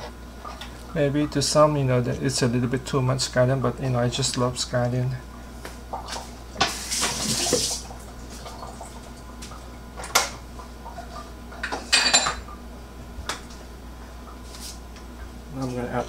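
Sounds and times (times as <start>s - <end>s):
utensils and dishes clattering: 11.0s - 12.5s.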